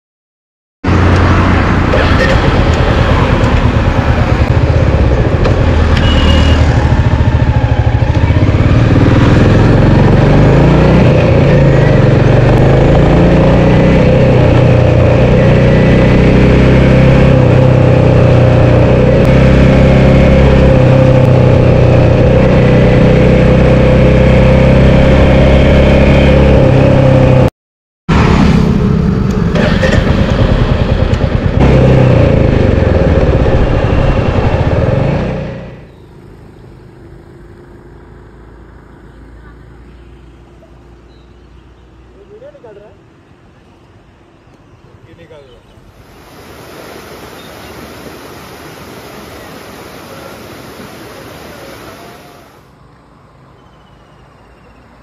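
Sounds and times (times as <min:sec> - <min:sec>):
motorcycle engine running: 0:00.9 - 0:27.4, 0:28.2 - 0:40.2.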